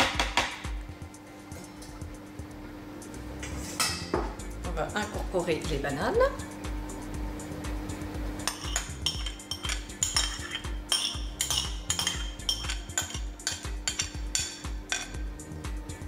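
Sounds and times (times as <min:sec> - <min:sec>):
background music with steady beat: 0:00.0 - 0:16.0
utensil scraping ceramic bowl: 0:08.5 - 0:15.1.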